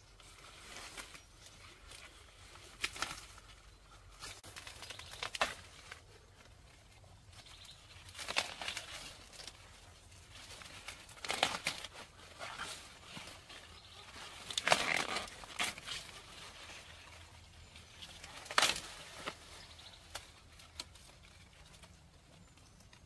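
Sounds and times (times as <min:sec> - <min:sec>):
corn leaves rustling and crackling: 0:00.0 - 0:23.0
corn ears snapping: 0:01.8 - 0:03.5, 0:04.2 - 0:06.6, 0:07.5 - 0:22.0.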